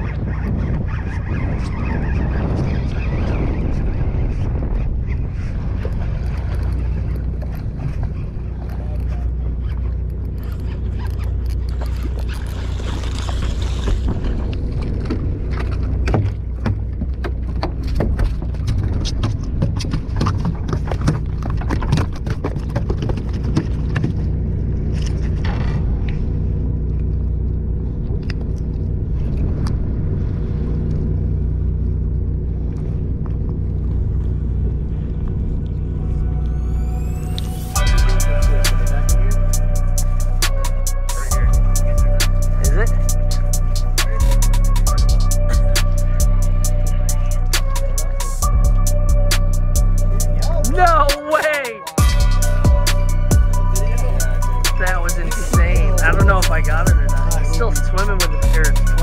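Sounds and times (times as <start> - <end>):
boat engine idling: 0.0 - 59.0
fish thrashing on deck: 10.4 - 24.4.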